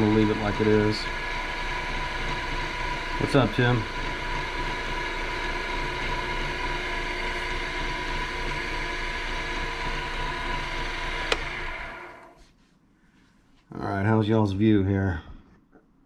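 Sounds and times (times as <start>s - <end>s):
wood lathe running: 0.0s - 12.4s.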